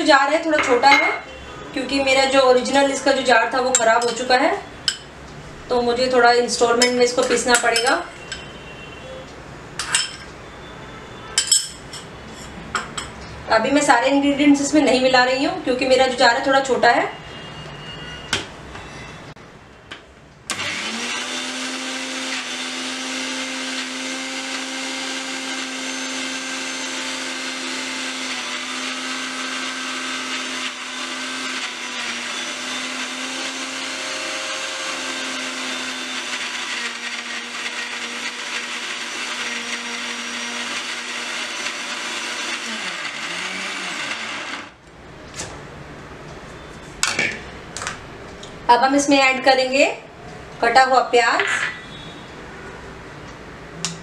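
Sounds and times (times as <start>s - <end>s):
mixer grinder humming: 20.5s - 44.8s.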